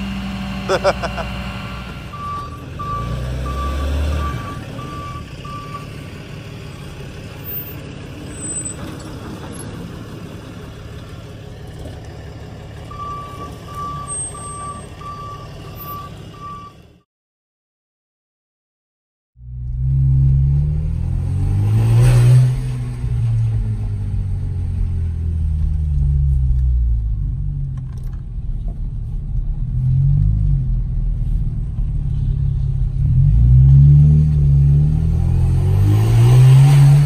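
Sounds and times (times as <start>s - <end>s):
truck engine running: 0.0s - 3.0s
truck backup beeper: 0.2s - 5.9s, 12.9s - 17.1s.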